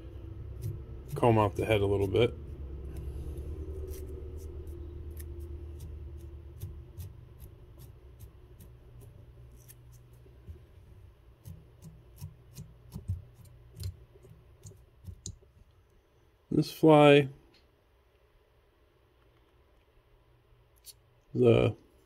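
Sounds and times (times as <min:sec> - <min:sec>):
low hum: 0:00.0 - 0:16.2
brush scratching through fibres: 0:00.5 - 0:10.5.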